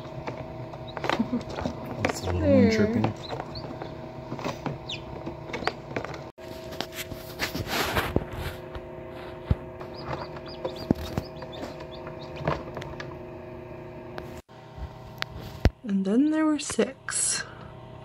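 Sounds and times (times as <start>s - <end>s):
incubator hum: 0.0s - 18.0s
chicks cheeping: 0.7s - 2.2s, 3.0s - 5.8s, 9.8s - 12.6s.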